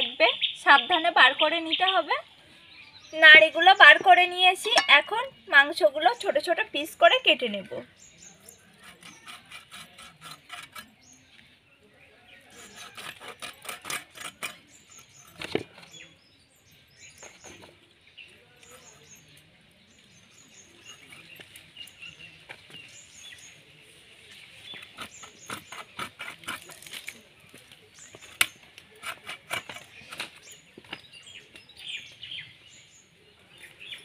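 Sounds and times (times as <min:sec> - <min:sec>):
small birds chirping: 0:00.0 - 0:34.0
blade cutting meat: 0:08.8 - 0:10.9, 0:12.6 - 0:14.7, 0:25.0 - 0:27.0.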